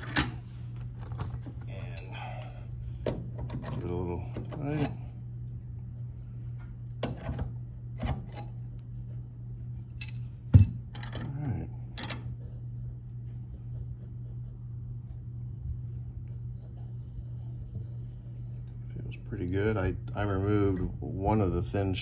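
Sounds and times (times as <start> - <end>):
metal parts clinking: 0.0 - 2.2, 10.0 - 11.4
steady low hum: 0.0 - 22.0.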